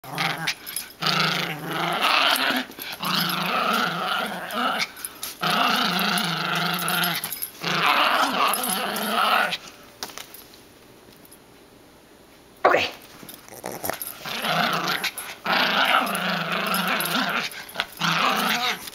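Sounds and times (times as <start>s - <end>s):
small dog growling: 0.0s - 9.6s, 13.5s - 18.9s.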